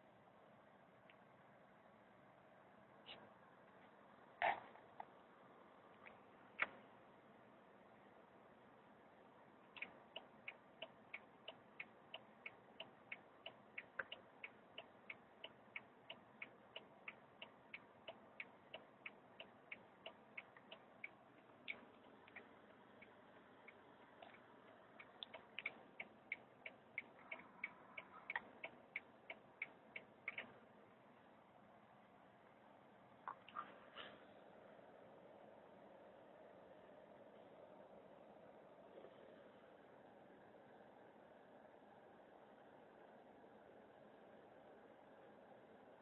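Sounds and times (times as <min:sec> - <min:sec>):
faint sharp clicking: 0:09.7 - 0:30.6.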